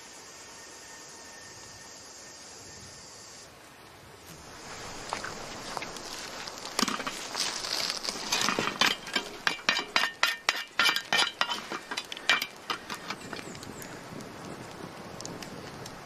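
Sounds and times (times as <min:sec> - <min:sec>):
metal cookware clinking: 0:08.2 - 0:13.2.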